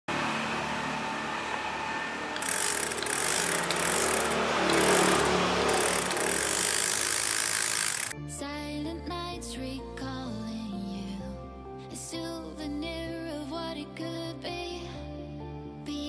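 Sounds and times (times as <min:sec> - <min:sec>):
small motor whirring: 0:01.6 - 0:08.2.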